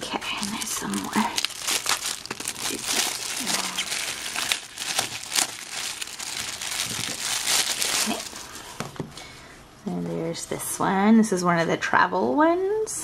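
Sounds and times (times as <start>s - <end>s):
plastic wrapper crinkling: 0.0s - 8.8s.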